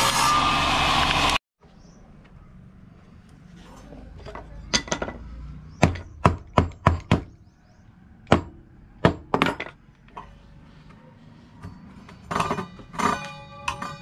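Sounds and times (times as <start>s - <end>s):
hammer striking wood: 5.8s - 7.4s.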